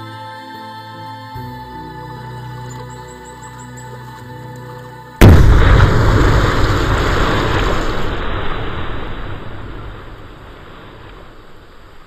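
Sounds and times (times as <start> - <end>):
explosion with deep rumble: 5.2 - 11.5.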